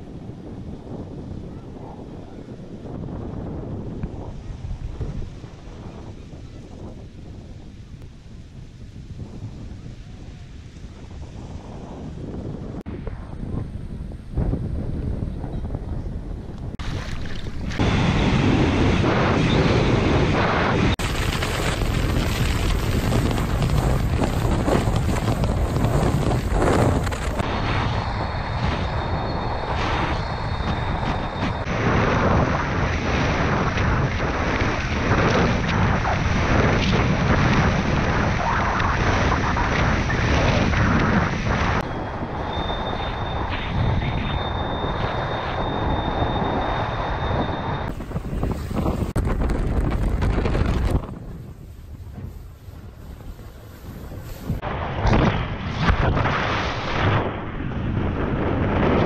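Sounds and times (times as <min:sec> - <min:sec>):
wind rushing over microphone: 0:00.0 - 0:59.0
thin high whistle: 0:28.0 - 0:31.7, 0:41.9 - 0:47.9.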